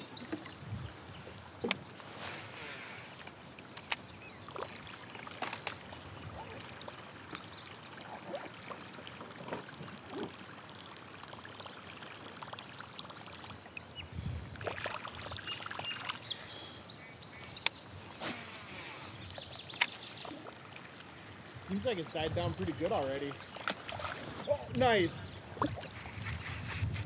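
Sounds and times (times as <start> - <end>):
waves lapping against kayak hull: 17.5 - 27.0
sharp clicks: 19.7 - 20.0.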